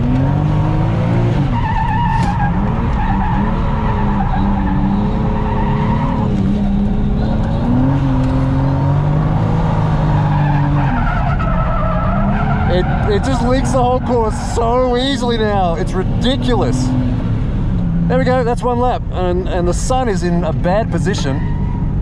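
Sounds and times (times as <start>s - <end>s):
car engine revving: 0.0s - 22.0s
tyres squealing: 10.0s - 17.1s.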